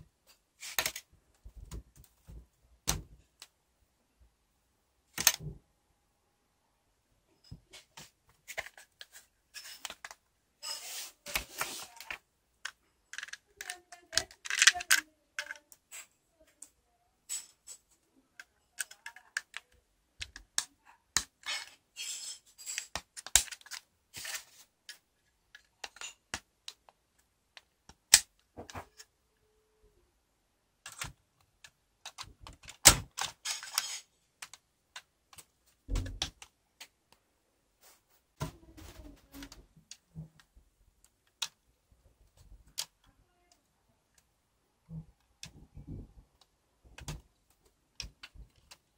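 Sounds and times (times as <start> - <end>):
plastic parts clicking and clattering: 0.6 - 3.6, 5.1 - 5.6, 7.4 - 16.2, 17.2 - 29.2, 30.8 - 37.0, 38.8 - 41.6, 42.3 - 43.1, 44.9 - 48.9.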